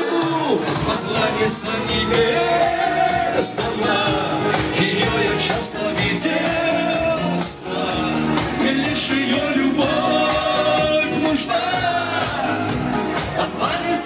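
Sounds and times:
keyboard accompaniment with beat: 0.0s - 14.0s
man singing pop song: 0.0s - 14.0s.

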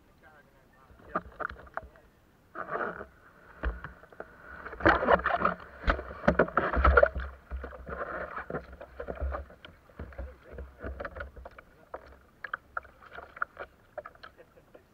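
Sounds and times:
muffled underwater sloshing: 0.7s - 14.9s
water splashing: 2.6s - 14.9s.

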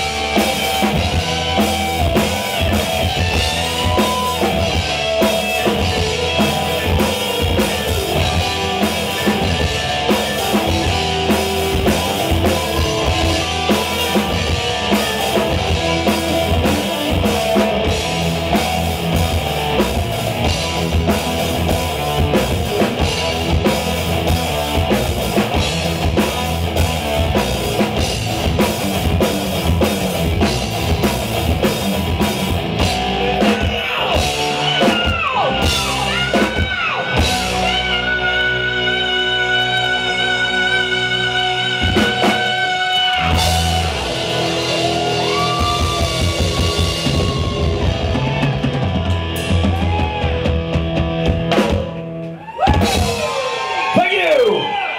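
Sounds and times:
live heavy metal band: 0.0s - 54.9s
sliding high guitar notes: 31.8s - 50.5s.

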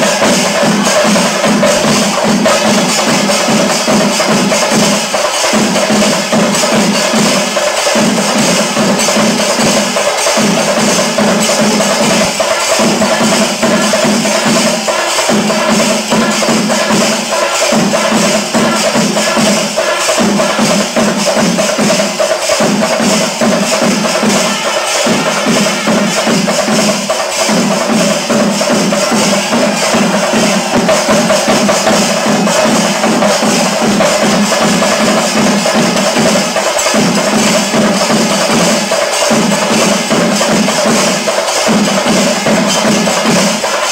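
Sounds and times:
music with clacking percussion: 0.0s - 43.9s.

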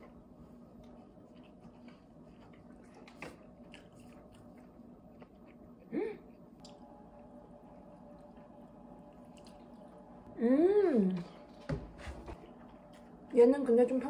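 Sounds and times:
chewing and biting food: 0.6s - 6.8s, 7.9s - 10.0s
person humming with enjoyment: 10.4s - 11.3s.

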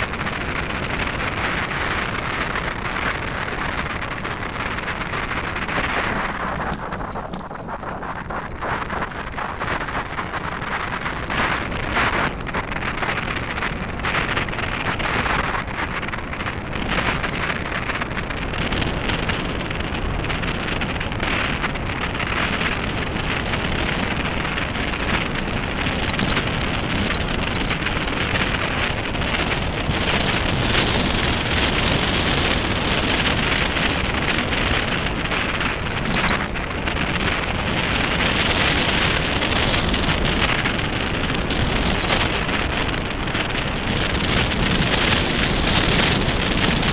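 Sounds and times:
grit and stones crackling: 0.0s - 46.9s
wind buffeting microphone: 0.0s - 46.9s.

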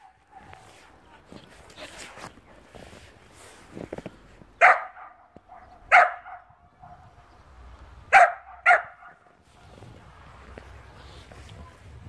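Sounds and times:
puppy barking: 4.6s - 7.1s, 8.1s - 9.3s.

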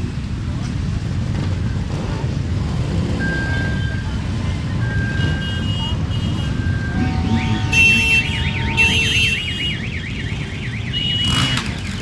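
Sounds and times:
motorcycle engines rumbling: 0.0s - 12.0s
electronic alarm warble: 6.6s - 11.4s.

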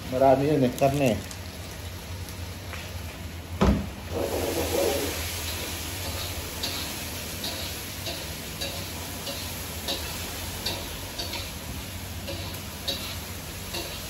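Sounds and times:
meat frying in pan: 0.0s - 14.0s
spatula scraping pan: 4.1s - 11.6s.

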